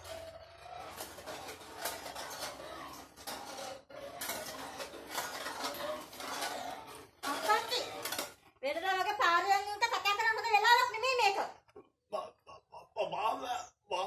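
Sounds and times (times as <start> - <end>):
wheelchair frame clinking and rattling: 0.0 - 8.4.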